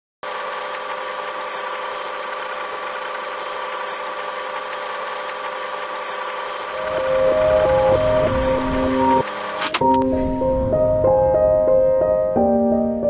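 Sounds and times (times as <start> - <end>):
tape rewind mechanical whirr: 0.2 - 11.1
held hum: 6.6 - 12.1
tape hiss: 6.8 - 9.2.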